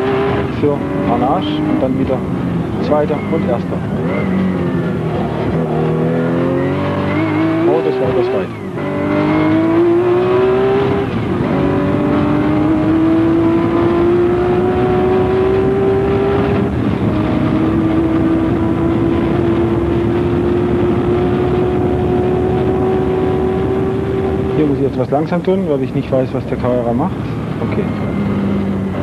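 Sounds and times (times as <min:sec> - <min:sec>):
race car engine accelerating: 0:00.0 - 0:29.0.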